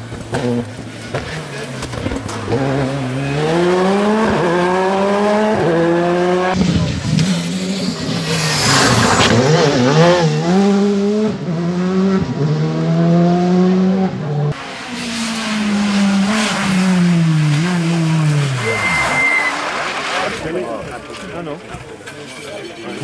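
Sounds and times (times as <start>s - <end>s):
tyre noise: 0.0s - 11.4s
rally car engine accelerating: 0.1s - 21.2s
second car engine revving past: 2.5s - 20.4s.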